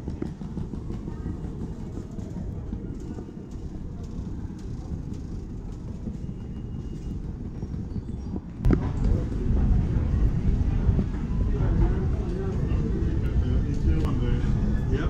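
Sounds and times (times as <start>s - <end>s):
suitcase wheels rolling on tiles: 0.0s - 11.1s.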